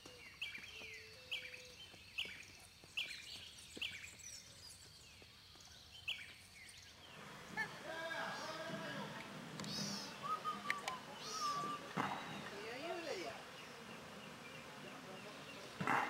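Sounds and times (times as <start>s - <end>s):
faint bird twittering: 0.0s - 16.0s
lower bird call: 7.0s - 16.0s
bird call sliding down: 9.2s - 12.5s.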